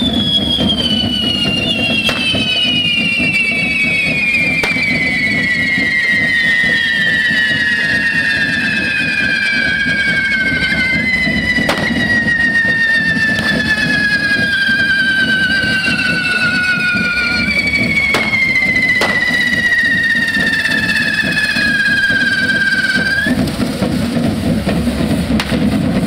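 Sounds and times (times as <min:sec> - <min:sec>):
rumbling hiss: 0:00.0 - 0:26.0
whistling fireworks screeching: 0:00.0 - 0:26.0
sharp cracks: 0:04.6 - 0:04.9, 0:11.7 - 0:12.1, 0:18.1 - 0:20.5.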